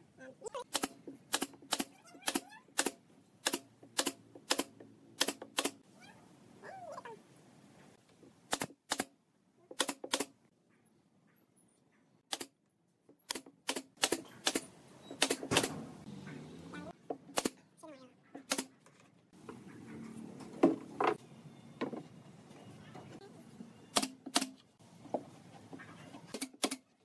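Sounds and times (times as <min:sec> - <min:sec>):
nail gun firing into wood: 0:00.7 - 0:05.8, 0:08.5 - 0:09.1, 0:09.8 - 0:10.3, 0:13.3 - 0:15.8, 0:23.9 - 0:24.6.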